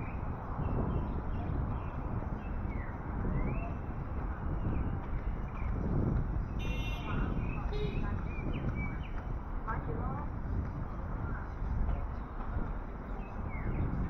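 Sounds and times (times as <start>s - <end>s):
birds chirping: 0.0s - 9.9s, 11.4s - 14.0s
low outdoor rumble: 0.0s - 14.0s.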